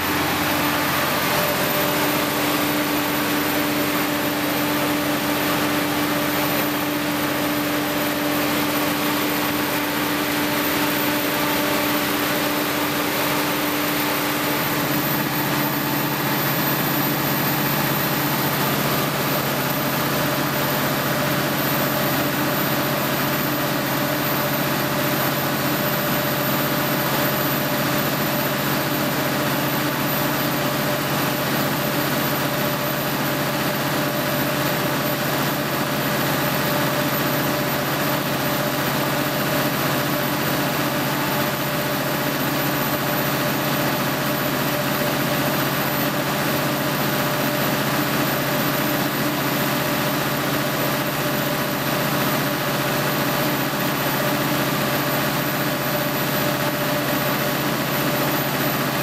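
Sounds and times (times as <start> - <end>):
diesel generator running: 0.0 - 59.0.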